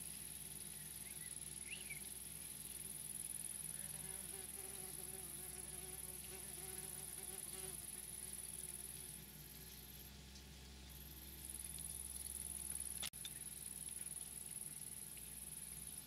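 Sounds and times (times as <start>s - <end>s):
steady high-pitched hiss: 0.0s - 16.0s
flying insect buzzing: 3.7s - 9.1s.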